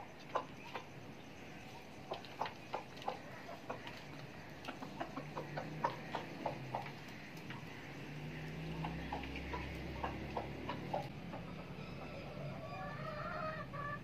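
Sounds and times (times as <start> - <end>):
hens pecking on metal tray: 1.9 - 11.1.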